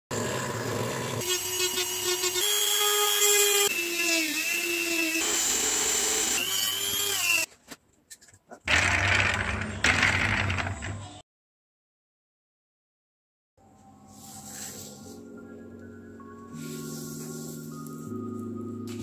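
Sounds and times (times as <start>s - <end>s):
rotary tool cutting: 0.2s - 7.5s
cordless drill whining: 0.5s - 7.5s.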